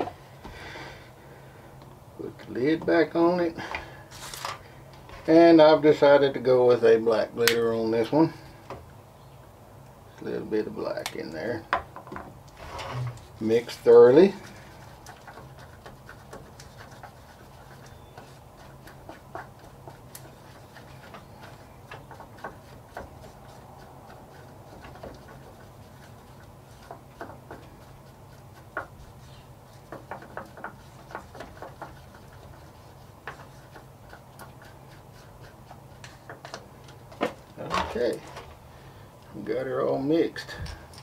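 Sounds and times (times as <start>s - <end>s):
stick scraping a cup: 12.6s - 36.7s.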